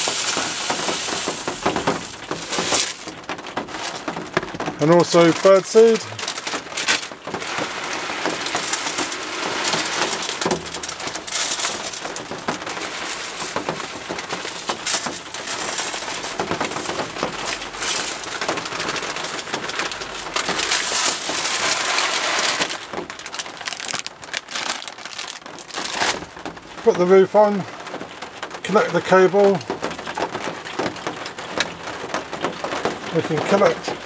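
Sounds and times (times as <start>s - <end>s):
bird seed pouring into plastic: 0.0s - 3.2s, 4.9s - 26.3s
plastic bag crinkling: 0.0s - 34.0s.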